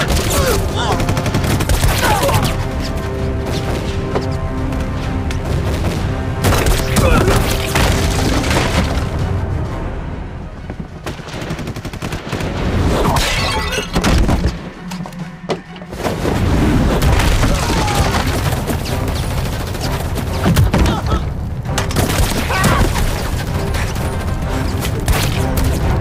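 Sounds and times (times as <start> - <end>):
rapid gunfire: 0.0 - 2.7, 11.0 - 12.7, 17.1 - 20.7
dramatic music score: 0.0 - 26.0.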